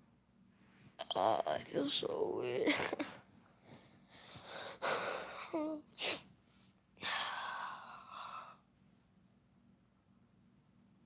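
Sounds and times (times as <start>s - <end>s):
person breathing: 3.6s - 5.7s, 6.5s - 8.7s
breathy sigh: 3.7s - 5.8s.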